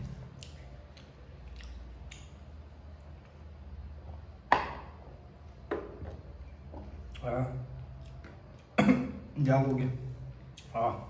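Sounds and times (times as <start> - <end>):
soft squishes of food mixing: 0.0 - 11.0
chewing: 0.3 - 2.4.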